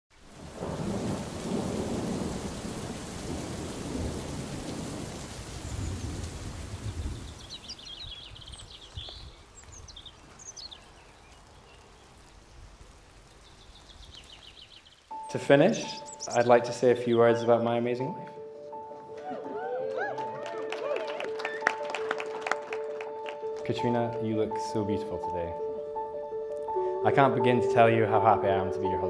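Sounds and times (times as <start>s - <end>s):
rain falling: 0.1s - 17.6s
low rumbling thunder: 0.3s - 7.6s.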